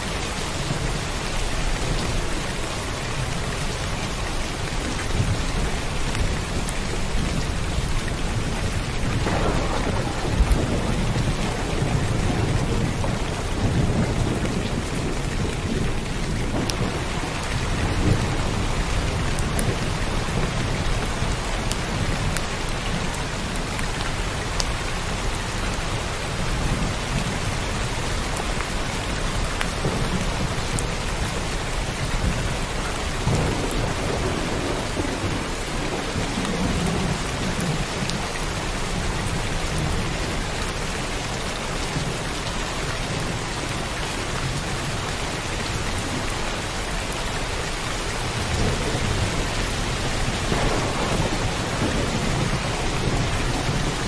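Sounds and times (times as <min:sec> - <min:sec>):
heavy rain pouring: 0:00.0 - 0:54.0
rumble of thunder: 0:05.1 - 0:23.5, 0:29.0 - 0:40.6, 0:48.2 - 0:54.0.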